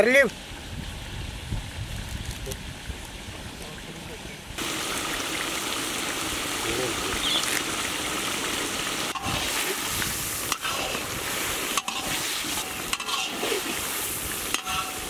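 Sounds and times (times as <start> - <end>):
curry sizzling and bubbling: 4.5 - 15.0
ladle stirring: 9.1 - 15.0.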